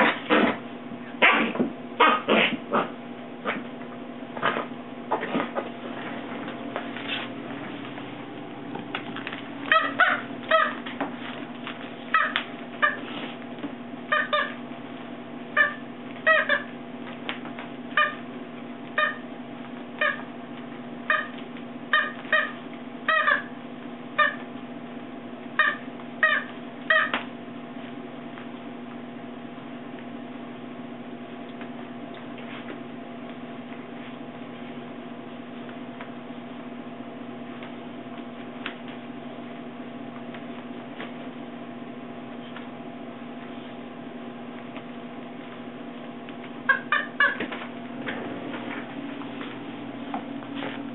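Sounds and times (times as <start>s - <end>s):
steady low hum: 0.0s - 50.9s
squeaky toy squeaks: 9.7s - 10.8s, 14.1s - 14.6s, 15.6s - 16.7s, 22.0s - 23.5s.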